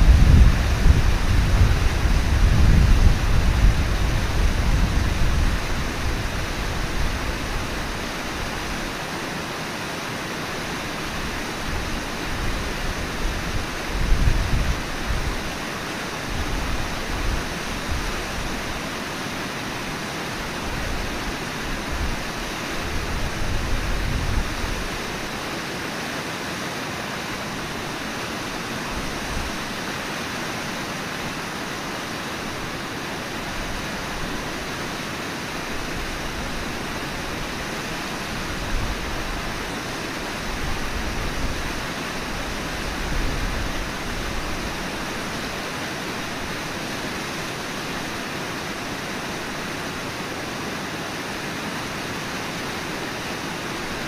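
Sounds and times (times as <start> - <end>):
wind rumbling on microphone: 0.0 - 9.1, 10.8 - 19.2, 20.4 - 25.4, 35.6 - 48.2
river water rushing: 0.0 - 54.0.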